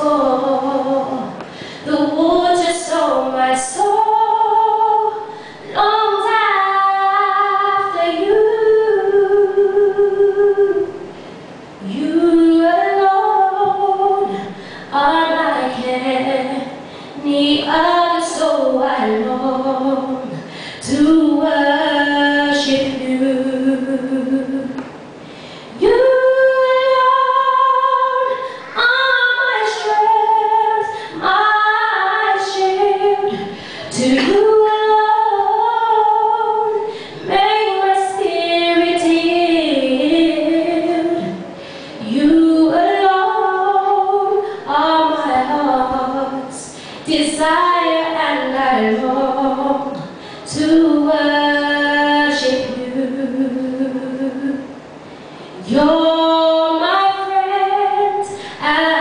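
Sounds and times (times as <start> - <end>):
woman singing a cappella: 0.0 - 11.2, 11.8 - 24.9, 25.7 - 54.8, 55.6 - 59.0.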